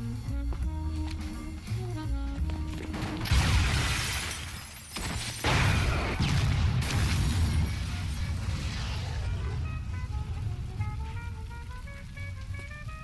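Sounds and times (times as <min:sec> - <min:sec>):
explosions: 0:05.4 - 0:11.1
fire rumbling: 0:05.4 - 0:13.0.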